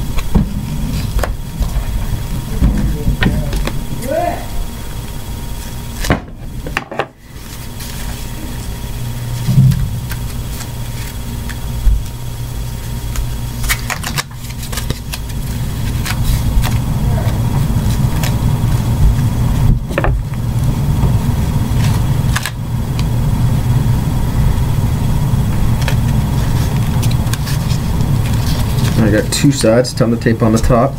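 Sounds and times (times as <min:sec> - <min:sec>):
steady low hum: 0:00.0 - 0:30.9
tape ripping: 0:13.1 - 0:17.4.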